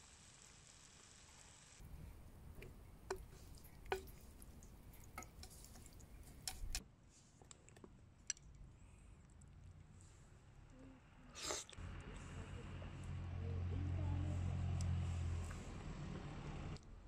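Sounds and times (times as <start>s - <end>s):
soft squishes of food: 1.8s - 10.4s
chopsticks clicking on pan: 2.0s - 6.8s.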